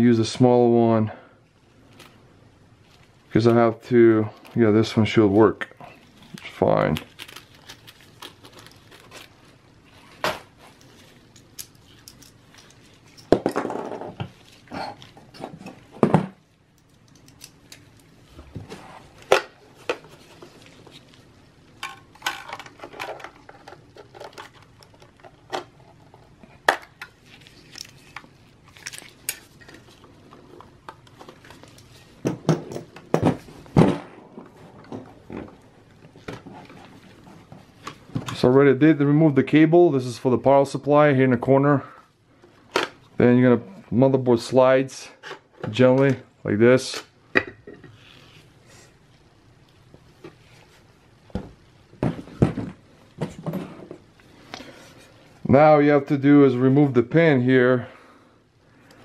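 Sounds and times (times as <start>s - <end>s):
rustling and scraping: 1.8s - 38.6s, 47.7s - 49.0s.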